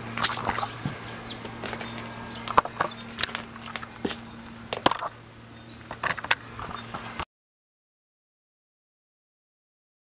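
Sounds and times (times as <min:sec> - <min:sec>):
steady low hum: 0:00.0 - 0:07.3
footsteps on concrete and leaves: 0:00.1 - 0:05.2.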